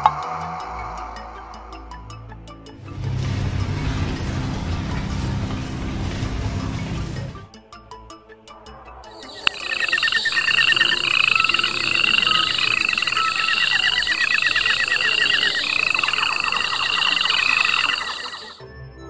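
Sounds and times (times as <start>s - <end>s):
fast rattling trill: 9.2s - 18.6s
shrill rising cartoon chirp: 9.2s - 18.6s.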